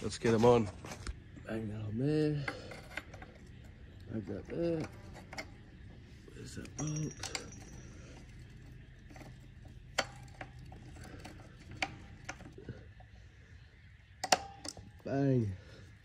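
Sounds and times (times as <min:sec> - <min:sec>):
metal parts clicking and knocking: 0:02.4 - 0:12.6, 0:14.2 - 0:15.1
sharp metal clanks: 0:04.6 - 0:12.6.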